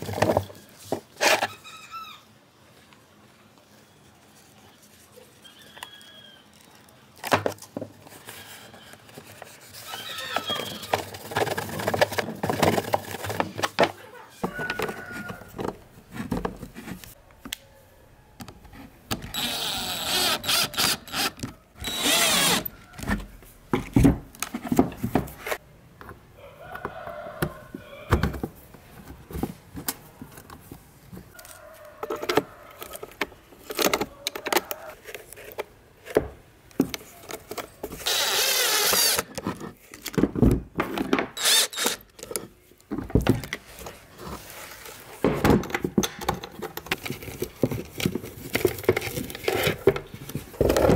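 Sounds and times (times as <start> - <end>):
plastic parts clicking and knocking: 10.4 - 17.6, 32.0 - 44.0, 45.2 - 50.9.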